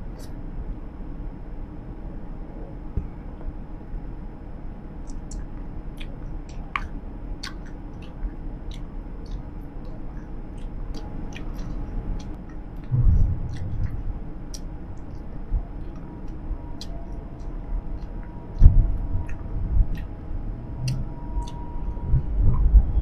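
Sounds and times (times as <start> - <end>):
moving vehicle rumble: 0.0 - 23.0
open-mouthed gum chewing: 5.1 - 20.2
low thud: 12.9 - 14.0.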